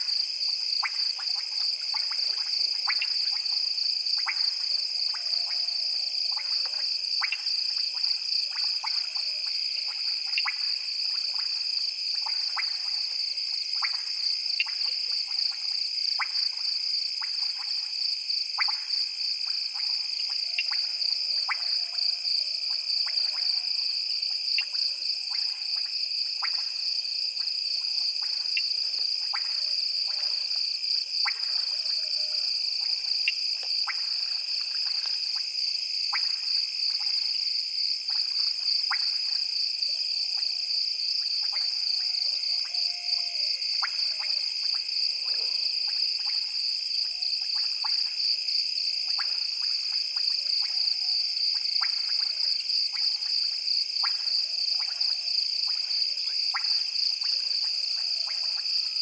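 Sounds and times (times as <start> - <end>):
faint low frog croaks: 41.4 - 48.0.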